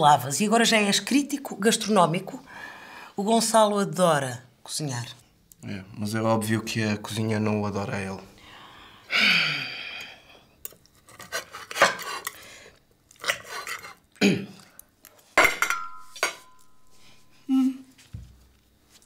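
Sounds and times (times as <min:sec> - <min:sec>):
cutlery clinking on ceramic plates: 0:15.4 - 0:16.8.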